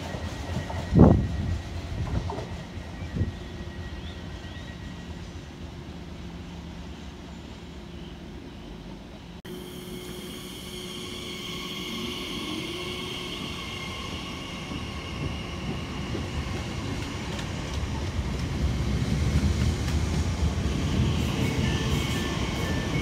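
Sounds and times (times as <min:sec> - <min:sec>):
electric train whine: 0:00.0 - 0:23.0
wheels rumbling on rail: 0:00.0 - 0:23.0.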